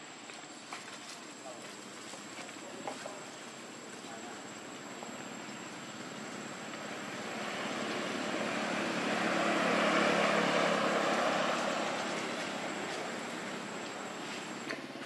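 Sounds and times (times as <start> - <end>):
distant engine passing by: 3.6 - 14.9.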